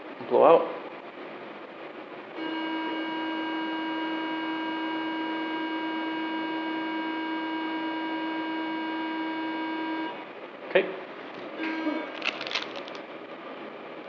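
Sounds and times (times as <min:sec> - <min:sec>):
steady machine tone: 0:02.3 - 0:10.4.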